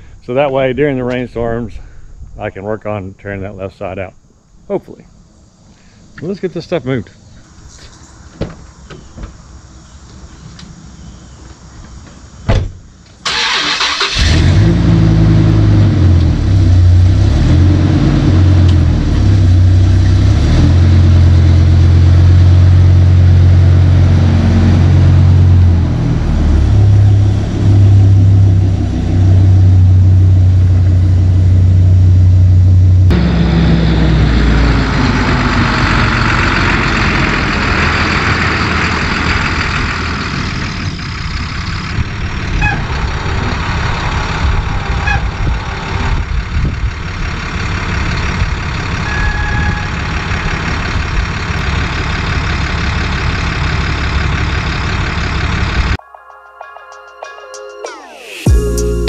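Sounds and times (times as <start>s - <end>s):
dump truck engine running: 11.1s - 56.0s
pickup truck engine driving off: 11.9s - 56.0s.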